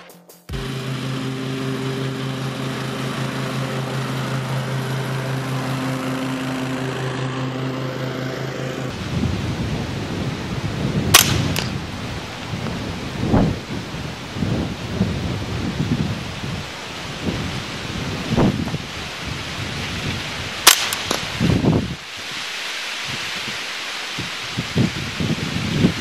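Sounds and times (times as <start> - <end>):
riding lawn mower engine running: 0.5 - 22.0
suppressed rifle shot: 11.1 - 11.8, 20.6 - 21.3.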